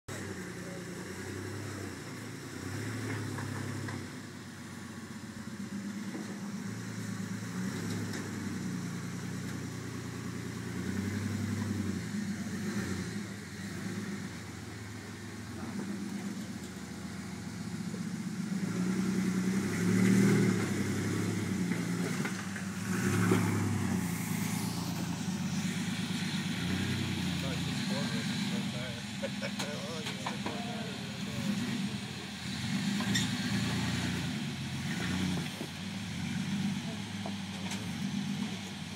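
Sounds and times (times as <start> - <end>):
off-road vehicle engine revving: 0.0 - 38.9.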